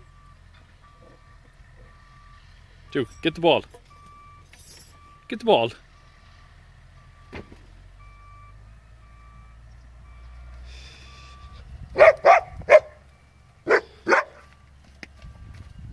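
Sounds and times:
husky barking: 0:12.0 - 0:13.0, 0:13.6 - 0:14.5.

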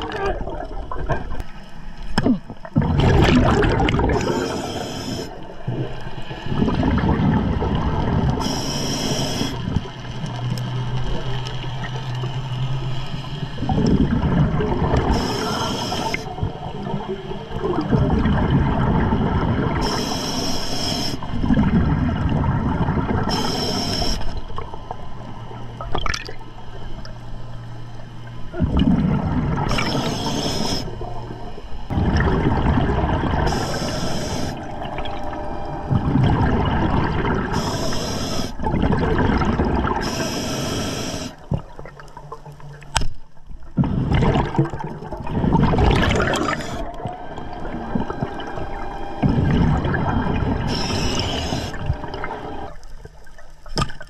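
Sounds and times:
exhaled bubbles gurgling: 0:00.0 - 0:27.1, 0:28.5 - 0:54.0
low steady hum: 0:00.0 - 0:54.0
scuba regulator inhale hiss: 0:04.1 - 0:05.6, 0:08.4 - 0:09.8, 0:15.1 - 0:16.4, 0:19.8 - 0:21.3, 0:23.2 - 0:24.4, 0:29.7 - 0:31.1, 0:33.4 - 0:34.7, 0:37.4 - 0:38.6, 0:40.0 - 0:41.5, 0:46.2 - 0:46.9, 0:50.6 - 0:51.9.

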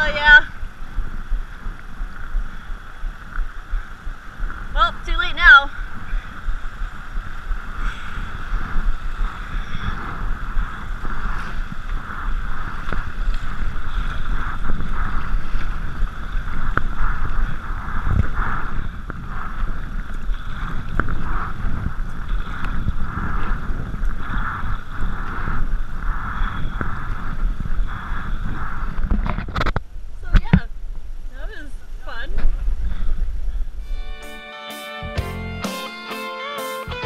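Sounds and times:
paddle blades splashing: 0:00.0 - 0:29.2
wind on microphone: 0:00.0 - 0:34.0.

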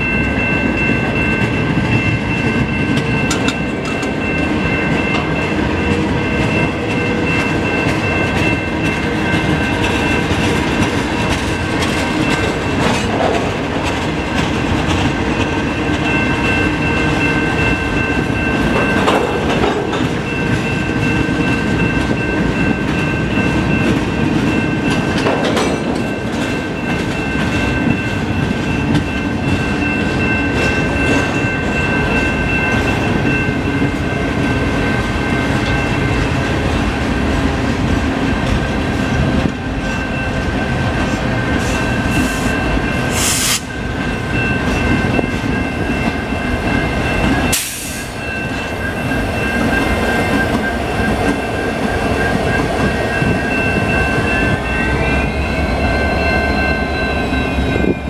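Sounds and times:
steel wheels clattering over rails: 0:01.1 - 0:33.3.

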